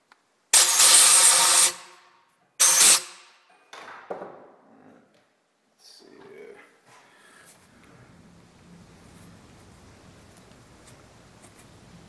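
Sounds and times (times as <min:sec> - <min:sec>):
air blow gun hissing: 0:00.6 - 0:02.0, 0:02.6 - 0:03.2.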